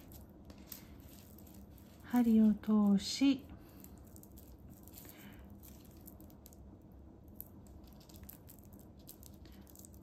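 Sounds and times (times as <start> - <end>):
plastic tape crinkling: 0.0 - 10.0.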